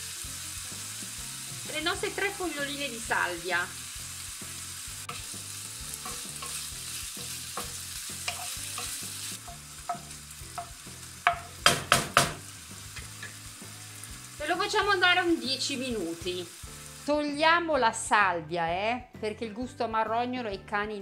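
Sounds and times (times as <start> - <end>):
chicken sizzling in oil: 0.0 - 17.2
spoon knocking on pan: 6.0 - 13.4.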